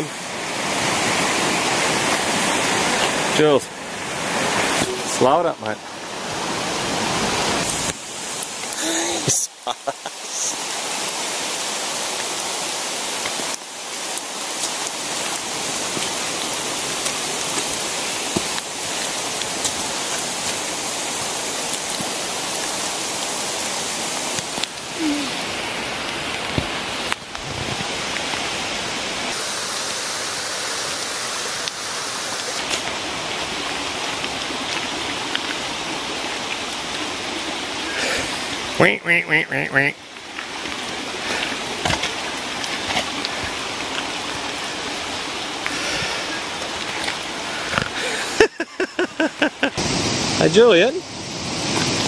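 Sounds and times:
rain and running water: 0:00.0 - 0:52.0.

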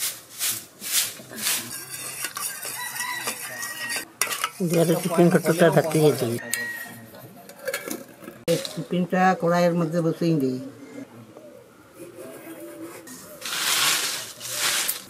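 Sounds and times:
metal spoon scraping in tin: 0:01.4 - 0:08.8.

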